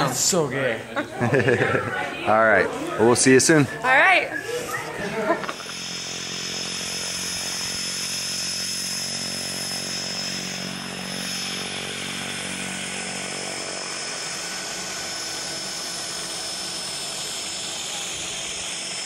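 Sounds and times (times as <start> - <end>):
turboprop engine running: 4.9 - 19.0.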